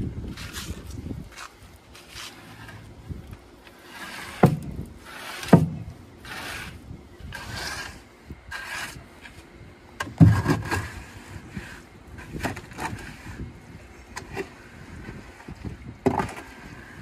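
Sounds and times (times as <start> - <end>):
wet concrete scraping and knocking: 3.6 - 8.0, 10.0 - 13.5, 14.1 - 17.0.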